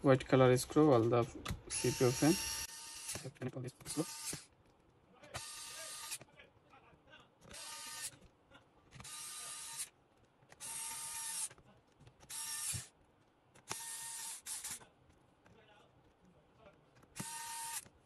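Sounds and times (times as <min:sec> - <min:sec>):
electric screwdriver running: 0:01.7 - 0:04.5, 0:05.4 - 0:06.2, 0:07.5 - 0:08.2, 0:09.0 - 0:09.9, 0:10.6 - 0:11.6, 0:12.2 - 0:12.9, 0:13.6 - 0:14.8, 0:17.2 - 0:17.9.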